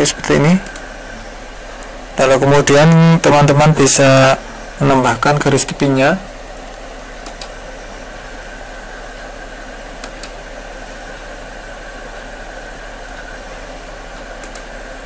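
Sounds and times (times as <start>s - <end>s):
steady hiss: 0.0s - 15.0s
computer mouse clicks: 0.6s - 0.9s, 7.2s - 7.6s, 10.0s - 10.4s, 14.2s - 14.7s.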